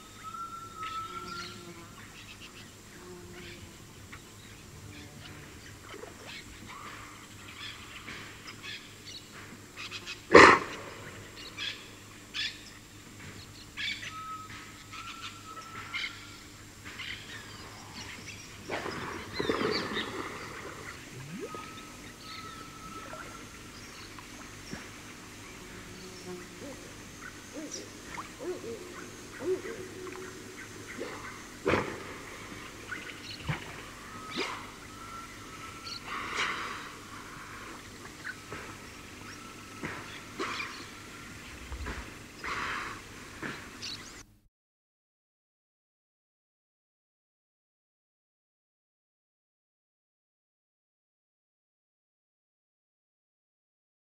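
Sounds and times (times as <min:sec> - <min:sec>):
insects droning: 0:00.0 - 0:44.2
bird rising whistle: 0:21.2 - 0:23.4.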